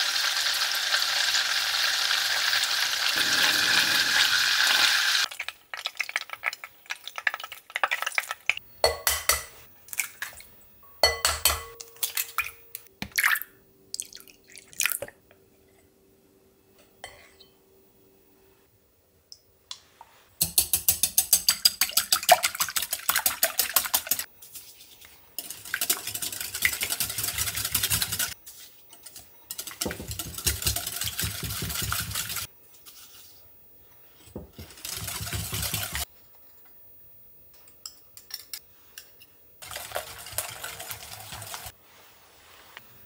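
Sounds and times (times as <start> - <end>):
whisk clattering in glass bowl: 25.4 - 28.4, 29.1 - 32.5.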